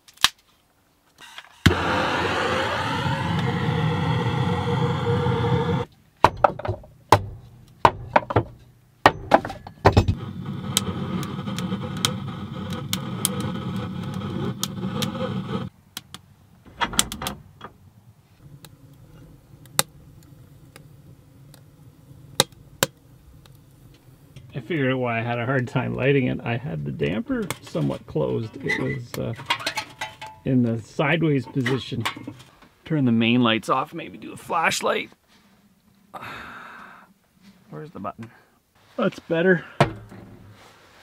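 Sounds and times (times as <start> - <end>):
gas torch hissing: 1.6 - 5.9, 10.2 - 15.7.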